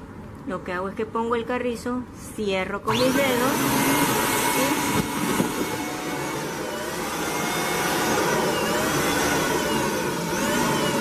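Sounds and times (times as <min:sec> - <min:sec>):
electric balloon inflator running: 0:02.9 - 0:11.0.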